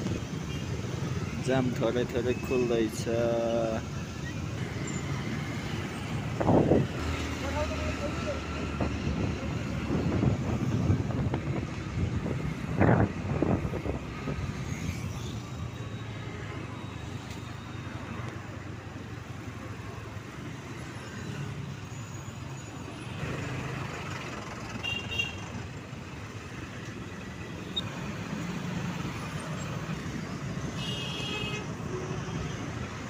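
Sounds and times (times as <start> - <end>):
motorbike engine and road rumble: 4.2 - 16.1.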